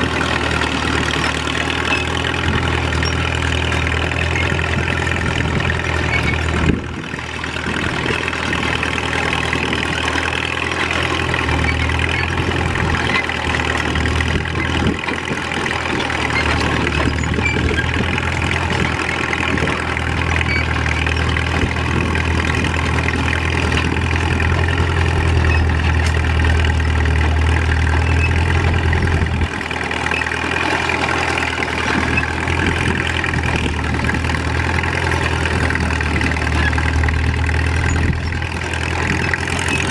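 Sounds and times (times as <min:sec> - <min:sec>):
diesel tractor engine running: 0:00.0 - 0:39.9.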